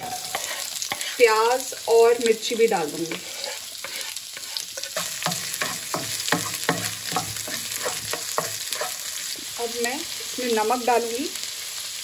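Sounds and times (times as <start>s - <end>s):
wooden spatula scraping a pan: 0.0s - 1.4s, 3.0s - 9.4s
onions sizzling in hot oil: 0.0s - 12.0s.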